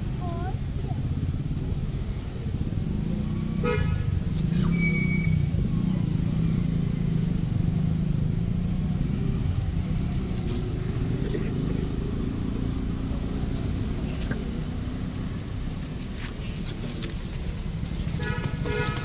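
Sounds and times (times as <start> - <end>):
low outdoor rumble: 0.0 - 19.0
vehicle horn toot: 3.2 - 4.2, 18.2 - 19.0.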